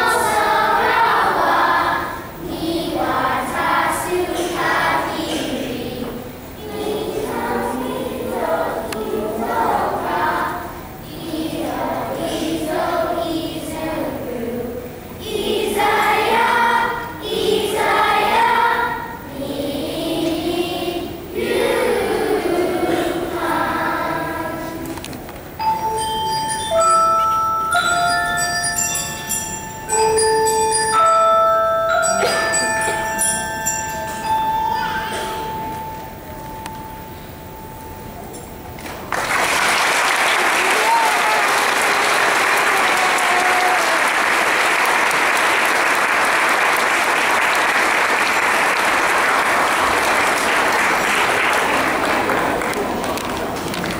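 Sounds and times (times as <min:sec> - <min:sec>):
children's choir singing: 0:00.0 - 0:53.9
mallet percussion notes ringing: 0:25.6 - 0:38.8.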